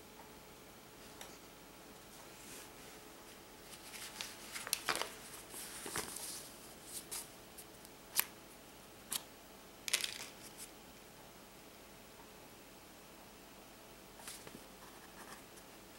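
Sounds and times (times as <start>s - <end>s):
stiff paper rustling: 3.6s - 7.3s.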